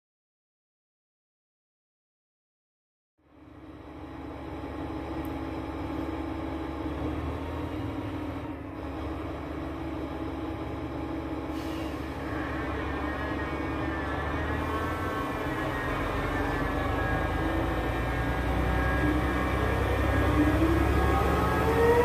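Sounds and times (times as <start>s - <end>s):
locomotive diesel engine running: 3.2s - 22.0s
wavering high whine: 9.0s - 22.0s.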